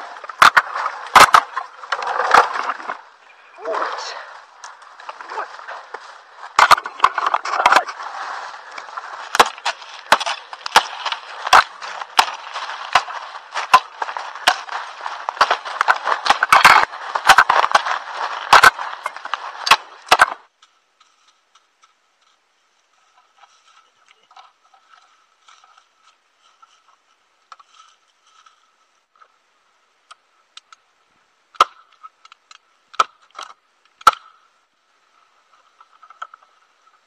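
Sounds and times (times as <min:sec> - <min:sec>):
pole dragged through leaf litter: 0:00.0 - 0:20.1
dry leaves and twigs crunching: 0:00.0 - 0:29.3.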